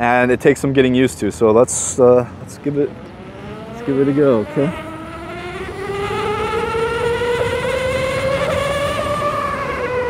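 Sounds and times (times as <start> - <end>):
electric motor whining: 2.9 - 10.0.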